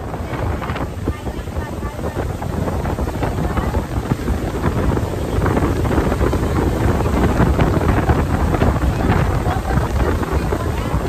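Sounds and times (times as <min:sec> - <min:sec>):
boat motor rumbling: 0:00.0 - 0:11.0
rushing spray: 0:00.0 - 0:11.0
wind buffeting microphone: 0:00.0 - 0:11.0.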